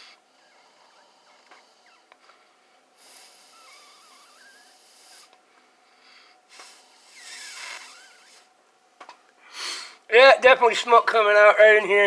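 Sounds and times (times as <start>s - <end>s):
breath blown into a hose: 3.0s - 5.4s, 6.5s - 8.5s.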